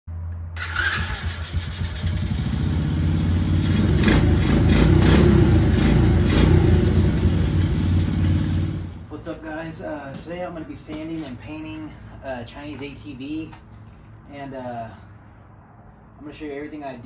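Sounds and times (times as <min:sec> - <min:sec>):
small engine revving: 0:00.6 - 0:09.0.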